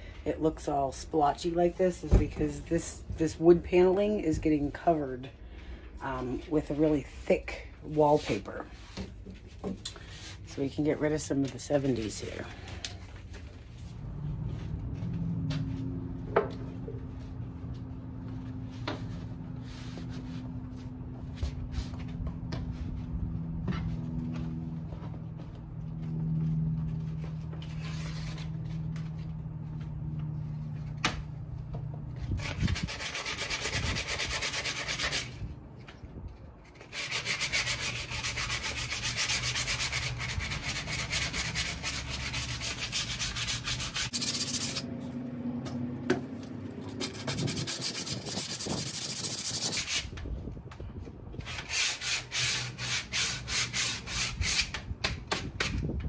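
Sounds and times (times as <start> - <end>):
hand sanding with sanding block: 18.7 - 22.1, 32.3 - 35.4, 36.8 - 44.9, 47.0 - 50.1, 51.4 - 54.8.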